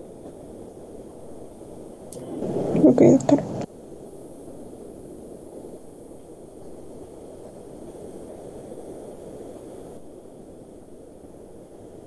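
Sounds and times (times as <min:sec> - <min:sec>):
low rushing microphone noise: 0:01.4 - 0:05.9.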